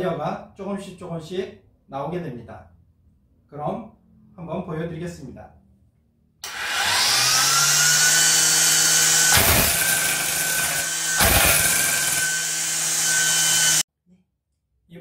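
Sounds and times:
string trimmer motor whining: 0:06.4 - 0:13.8.

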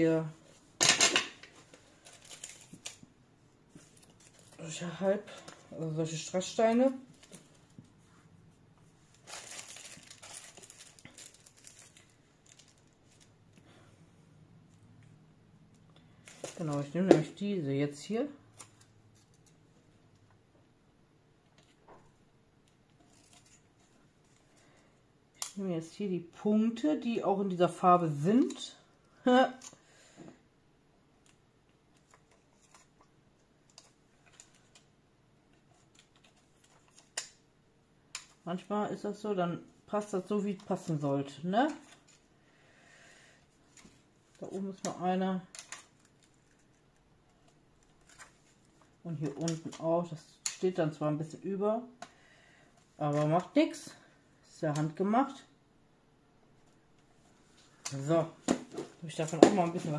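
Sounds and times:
sticker sheet crinkling as peeled: 0:01.8 - 0:03.0, 0:09.2 - 0:13.4.

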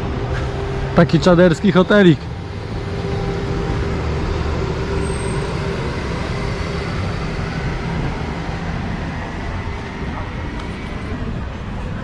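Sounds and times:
road noise: 0:00.0 - 0:12.0.

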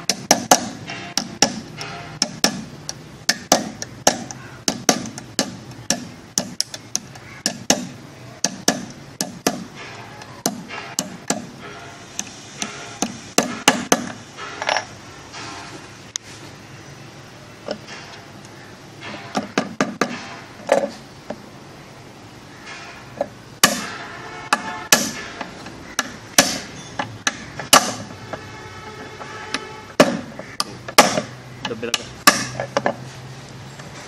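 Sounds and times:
hammer tapping nails: 0:00.1 - 0:09.7.

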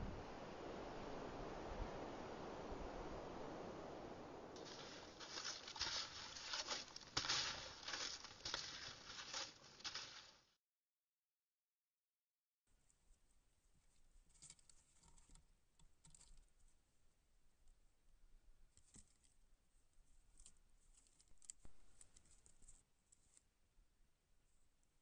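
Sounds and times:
animal clawing and chewing wood: 0:04.6 - 0:10.4.

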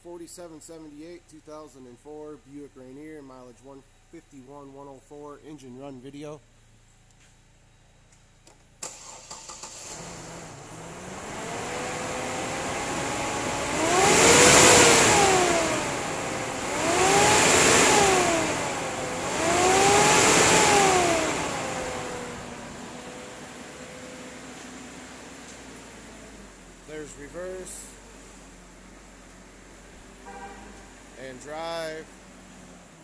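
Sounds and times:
car engine starting and revving: 0:07.7 - 0:33.0.

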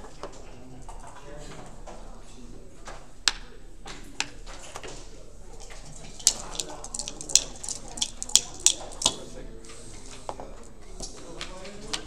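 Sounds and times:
plastic checkers clicking on board: 0:05.7 - 0:09.3.

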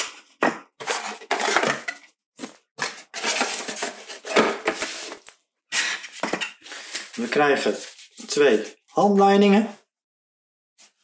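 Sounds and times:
cardboard and paper rustling: 0:00.8 - 0:08.8.

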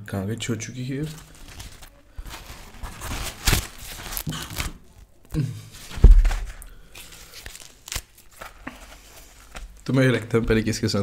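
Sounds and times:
dry flatbread crackling: 0:01.0 - 0:05.1, 0:05.8 - 0:09.9.

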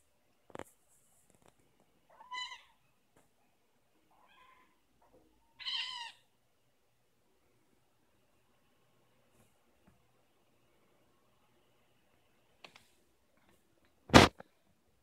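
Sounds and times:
kitten meowing: 0:02.1 - 0:02.8, 0:05.6 - 0:06.2.

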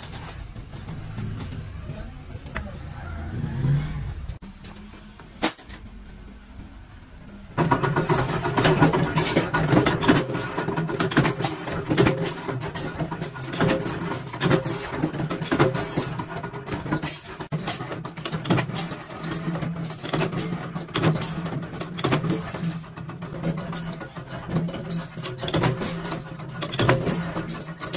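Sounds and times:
motor-driven machine rattling: 0:07.6 - 0:27.9.

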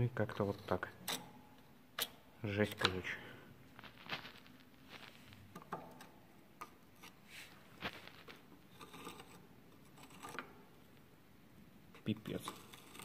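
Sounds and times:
screwdriver scraping and tapping metal: 0:08.7 - 0:10.6, 0:12.0 - 0:13.0.

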